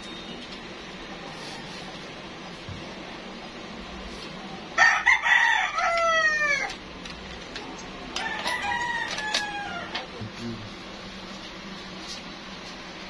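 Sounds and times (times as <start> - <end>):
rooster crowing: 4.8 - 6.8, 8.2 - 10.1.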